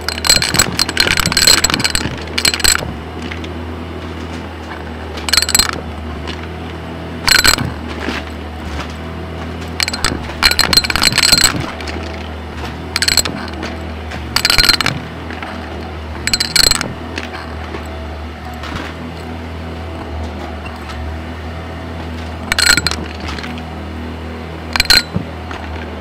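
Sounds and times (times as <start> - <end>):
coins clattering in vacuum: 0.0 - 3.1, 5.2 - 6.4, 7.3 - 8.3, 9.7 - 12.2, 12.9 - 17.8, 22.4 - 23.6, 24.8 - 25.8
stick vacuum running: 0.0 - 26.0.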